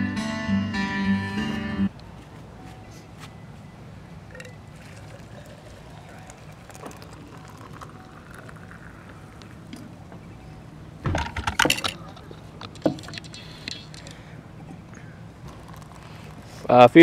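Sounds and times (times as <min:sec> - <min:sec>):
hot drink pouring into mug: 0:04.3 - 0:09.8, 0:15.5 - 0:16.7.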